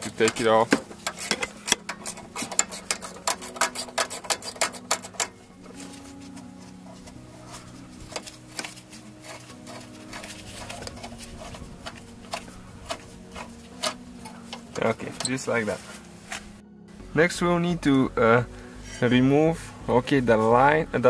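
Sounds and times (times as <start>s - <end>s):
ratcheting wrench clicking: 0.0s - 5.4s, 11.8s - 15.3s.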